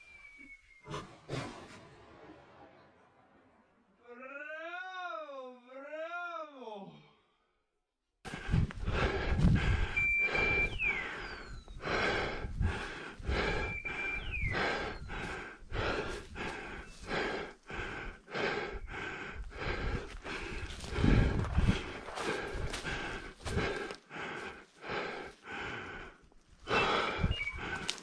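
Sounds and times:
heavy rhythmic breathing: 0:08.3 - 0:28.0
rustling through undergrowth: 0:20.1 - 0:25.4, 0:26.2 - 0:28.0.

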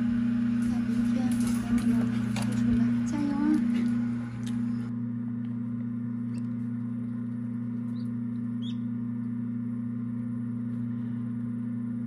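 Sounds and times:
incubator fan hum: 0:00.0 - 0:12.0.

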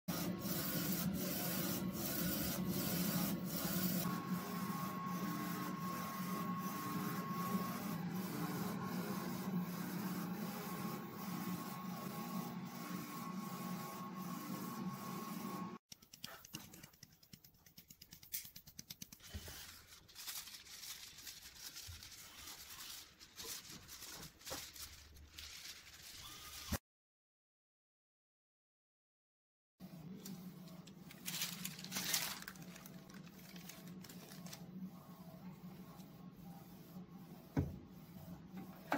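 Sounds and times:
printer carriage moving with whine: 0:00.1 - 0:15.8.

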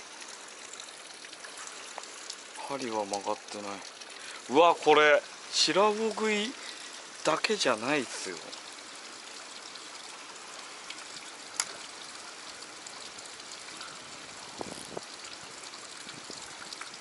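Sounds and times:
stream running over rocks: 0:00.0 - 0:17.0.

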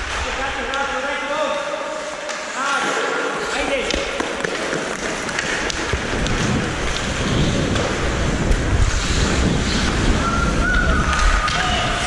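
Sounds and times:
clicks of sticks and puck: 0:00.0 - 0:00.9, 0:02.1 - 0:08.6, 0:10.7 - 0:11.8
wind rumbling on microphone: 0:05.1 - 0:12.0
skate blades hissing on ice: 0:08.8 - 0:10.2.

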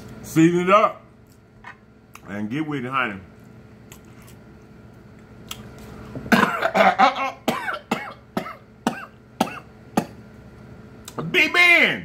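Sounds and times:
man coughing: 0:06.3 - 0:10.2.

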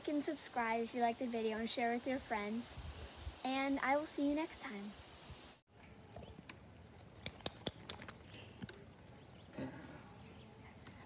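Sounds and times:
light sharp clinks: 0:06.9 - 0:08.8.

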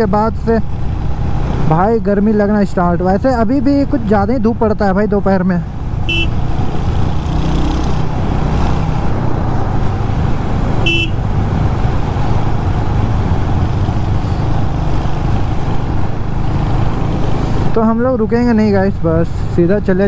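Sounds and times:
road noise: 0:00.0 - 0:20.0
horn beep: 0:06.1 - 0:06.4, 0:10.8 - 0:11.2.

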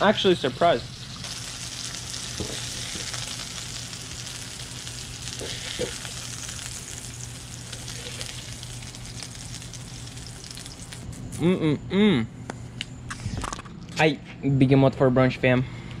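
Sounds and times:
fish sizzling in a frying pan: 0:00.6 - 0:11.4.

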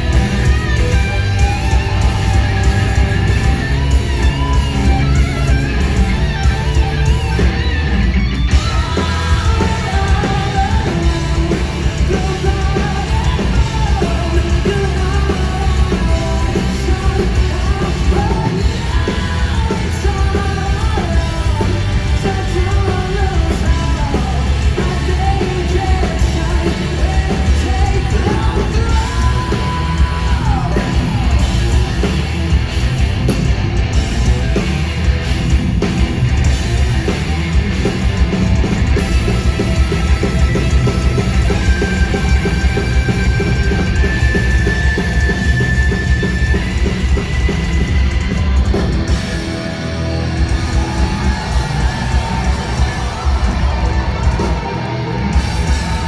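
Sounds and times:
hard rock band playing: 0:00.0 - 0:56.0
man singing: 0:08.6 - 0:31.8.

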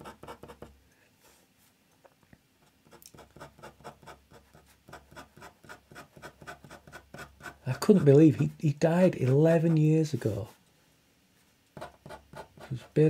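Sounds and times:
pen scratching on paper: 0:00.0 - 0:00.8, 0:02.8 - 0:10.5, 0:11.8 - 0:13.0.

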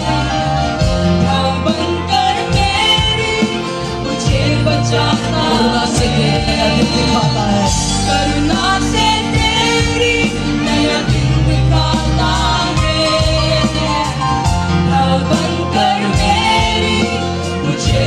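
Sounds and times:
drum kit: 0:00.0 - 0:18.0
keyboard: 0:00.0 - 0:18.0
voices singing together: 0:00.0 - 0:18.0.

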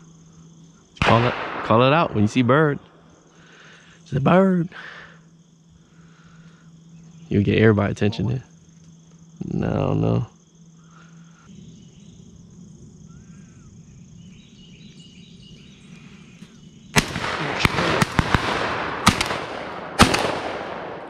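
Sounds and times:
shotgun shots with echo: 0:01.0 - 0:02.7, 0:17.0 - 0:21.0.

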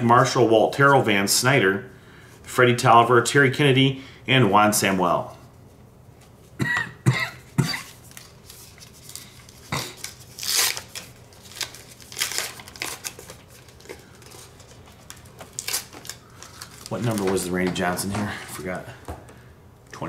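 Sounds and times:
foil wrapper tearing and crinkling: 0:08.1 - 0:17.5.

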